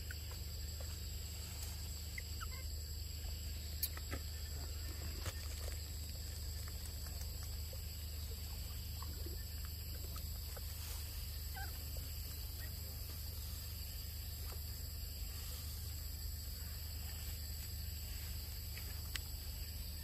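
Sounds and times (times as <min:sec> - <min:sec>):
constant low hum: 0:00.0 - 0:20.0
faint animal calls: 0:00.0 - 0:20.0.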